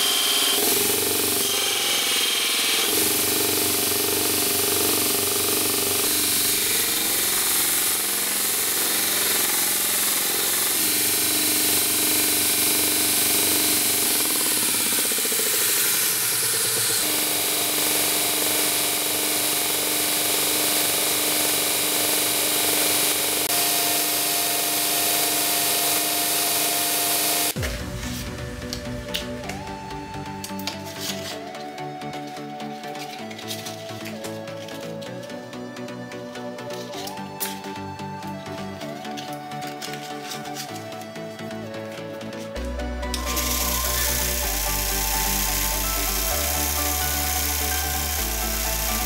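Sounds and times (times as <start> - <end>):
steel bar grinding on belt: 0.0 - 27.6
abrasive belt running: 0.0 - 27.8
grinder motor humming: 0.0 - 49.0.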